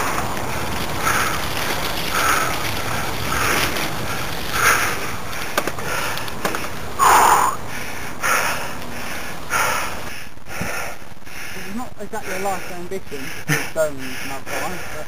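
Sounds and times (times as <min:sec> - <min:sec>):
bike clicks and rattles: 0:00.0 - 0:07.0
rumble of bike riding: 0:00.0 - 0:15.0
person breathing hard: 0:05.8 - 0:15.0.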